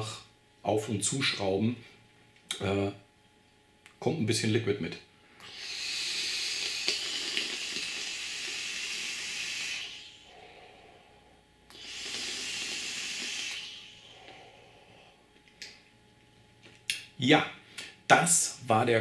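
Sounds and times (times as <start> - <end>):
breathy hiss of exhaling vapour: 5.4 - 15.3
e-cigarette air hissing: 5.4 - 15.8.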